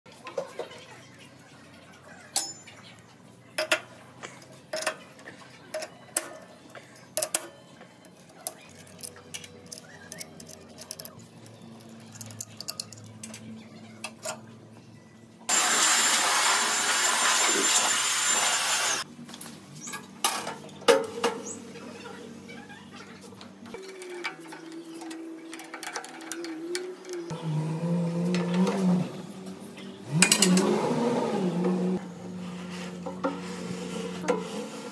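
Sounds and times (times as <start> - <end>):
metal clicks of hand tools: 7.1 - 13.4, 23.8 - 27.3
grinding machine hiss: 15.5 - 19.0.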